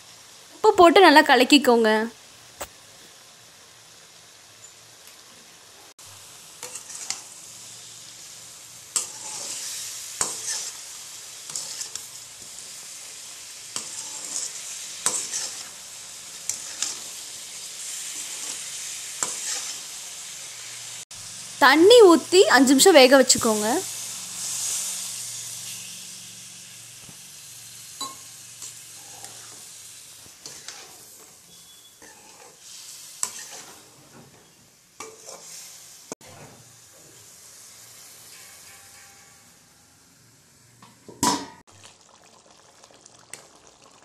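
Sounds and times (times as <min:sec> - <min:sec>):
chicken sizzling in a pan: 0:00.0 - 0:44.0
ladle scraping a pan: 0:06.6 - 0:07.3, 0:09.0 - 0:10.9, 0:11.5 - 0:12.1, 0:13.8 - 0:15.8, 0:16.4 - 0:17.2, 0:17.8 - 0:19.8, 0:28.9 - 0:29.7, 0:30.4 - 0:34.2, 0:35.0 - 0:36.7
water pouring: 0:41.7 - 0:44.0.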